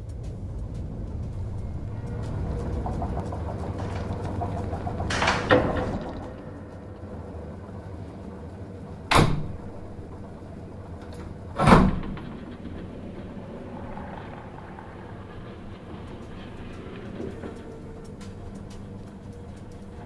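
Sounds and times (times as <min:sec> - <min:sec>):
low steady elevator hum: 0:00.0 - 0:20.0
heavy elevator clunks: 0:01.5 - 0:13.7
elevator doors sliding shut: 0:01.7 - 0:20.0.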